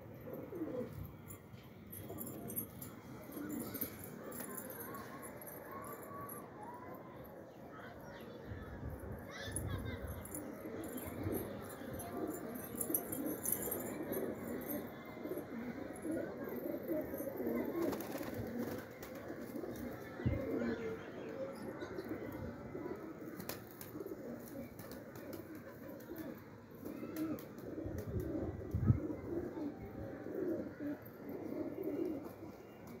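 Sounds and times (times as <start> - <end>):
pigeons cooing: 0.0 - 6.4, 10.1 - 33.0.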